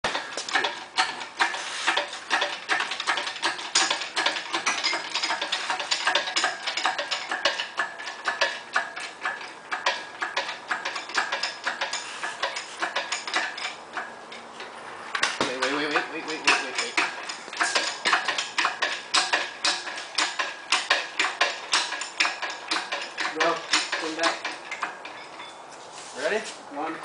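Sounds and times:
metallic clicking and clinking of tools: 0.1 - 25.6.

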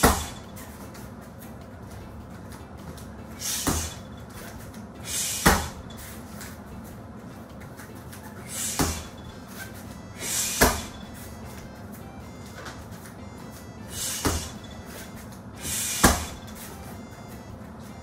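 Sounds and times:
punching bag thuds: 0.0 - 0.4, 3.4 - 4.0, 5.3 - 5.9, 8.7 - 9.2, 10.2 - 11.0, 14.0 - 14.7, 15.6 - 16.5
sharp hissing exhale: 5.0 - 5.5, 8.5 - 9.1, 10.2 - 10.6, 13.9 - 14.6, 15.6 - 16.3.

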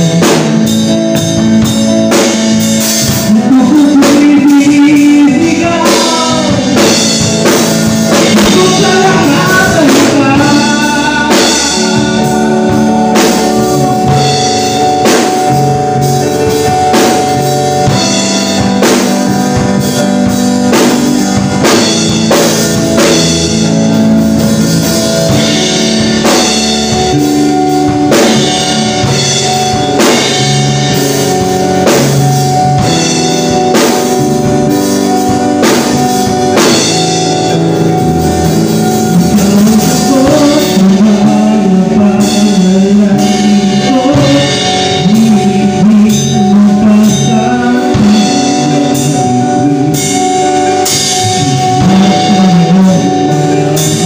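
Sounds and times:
drum kit steady beat: 0.0 - 54.0
electric bass: 0.0 - 54.0
keyboard sustained chords: 0.0 - 54.0.

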